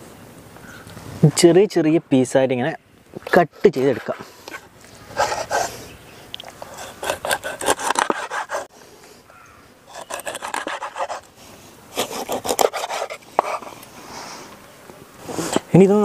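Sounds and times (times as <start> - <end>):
knife sawing through fish: 5.2 - 5.8, 6.6 - 8.7, 9.9 - 11.3, 11.9 - 13.7.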